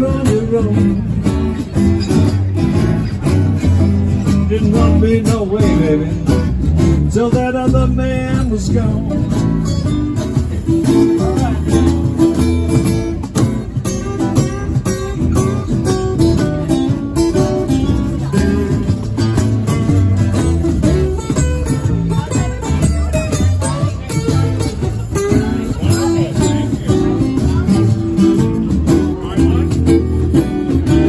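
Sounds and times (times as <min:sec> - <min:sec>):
acoustic guitars playing blues: 0:00.0 - 0:31.0.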